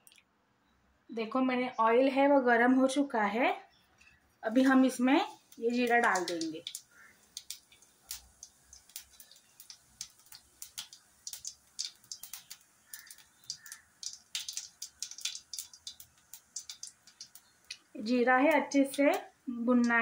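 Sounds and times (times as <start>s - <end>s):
seeds crackling in hot oil: 4.4s - 20.0s.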